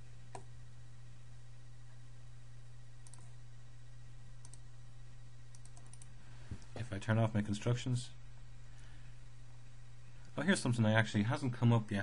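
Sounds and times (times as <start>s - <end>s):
faint low hum: 0.0s - 12.0s
computer mouse clicking: 3.0s - 3.3s, 4.4s - 4.6s, 5.5s - 6.7s.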